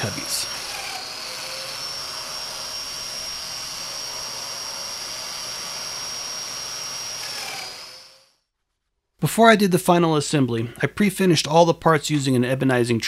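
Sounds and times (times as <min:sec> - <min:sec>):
dust extraction rushing: 0:00.0 - 0:08.0
joiner high-pitched whine: 0:00.0 - 0:08.2.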